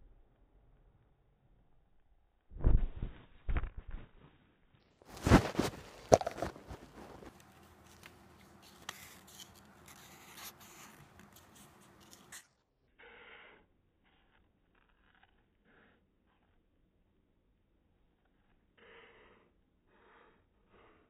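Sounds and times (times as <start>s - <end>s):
paper rustling: 5.1s - 12.4s
marker scratching on paper: 5.3s - 12.4s.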